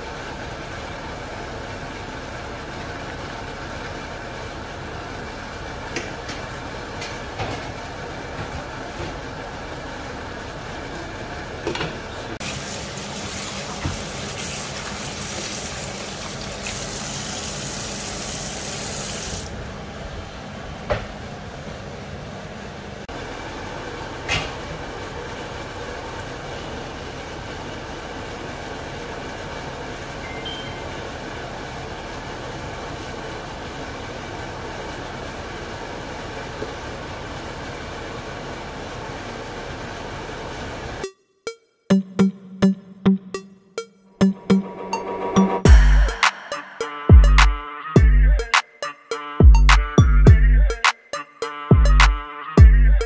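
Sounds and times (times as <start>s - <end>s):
tap water running into steel sink: 12.4s - 19.5s.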